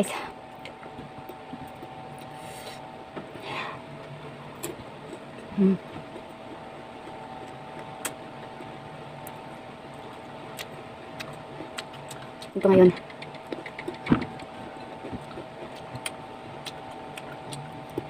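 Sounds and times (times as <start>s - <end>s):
faint steady hum: 0.0s - 18.0s
person chewing: 4.5s - 12.6s, 13.2s - 18.0s
person humming briefly: 5.6s - 5.8s.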